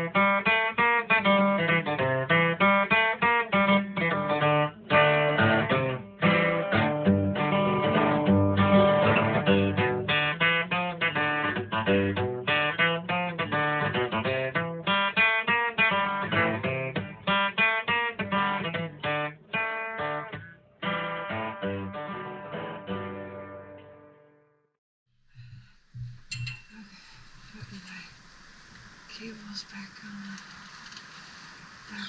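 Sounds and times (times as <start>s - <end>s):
plucked guitar notes: 0.0s - 24.4s.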